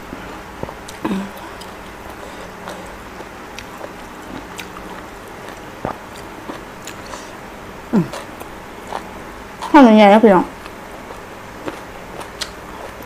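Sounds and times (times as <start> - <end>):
quiet chewing and mouth smacks: 0.2 - 7.4, 10.6 - 13.0.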